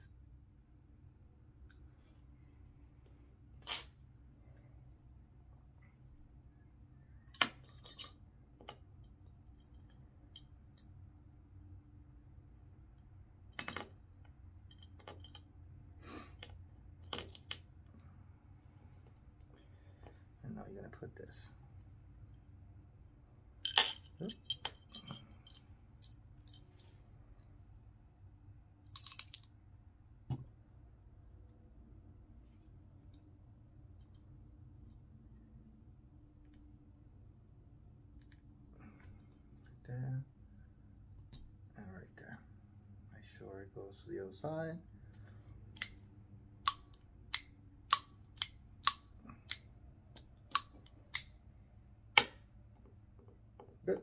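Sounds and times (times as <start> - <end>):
metal parts clicking together: 23.6 - 26.6.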